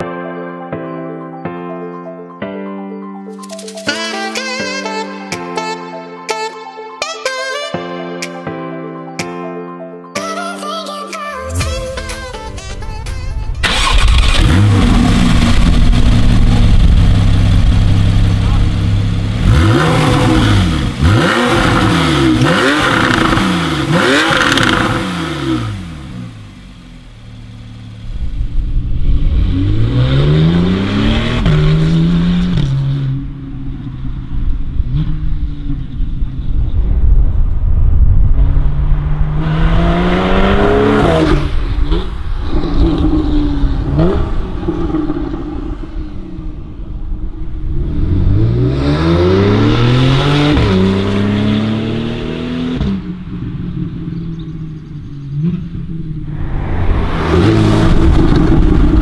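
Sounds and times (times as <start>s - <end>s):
car engine revving: 13.6s - 36.6s, 38.2s - 59.0s
car accelerating through gears: 19.4s - 26.3s, 38.6s - 46.6s, 47.8s - 53.1s, 55.3s - 59.0s.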